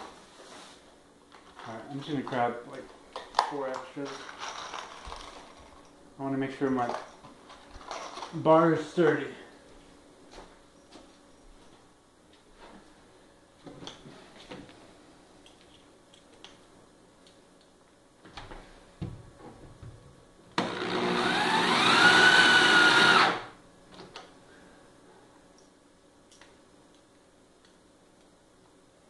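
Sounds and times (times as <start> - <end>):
electric drill whining: 20.6 - 23.6.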